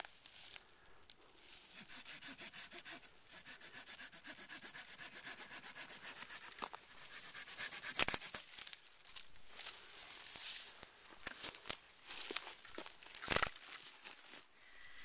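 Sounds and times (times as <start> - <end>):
hand saw cutting wood: 1.6 - 8.5
sharp wood crack: 7.9 - 8.7, 13.2 - 13.6.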